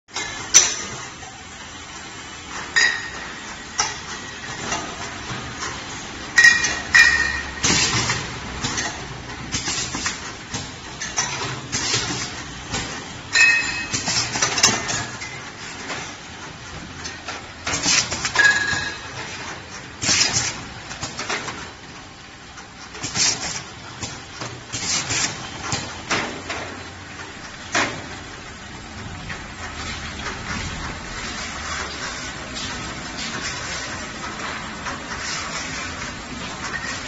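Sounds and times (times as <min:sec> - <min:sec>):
labeling machine running: 0:04.0 - 0:22.2
bottles clinking and knocking: 0:06.4 - 0:07.6, 0:13.3 - 0:14.1, 0:18.4 - 0:19.1.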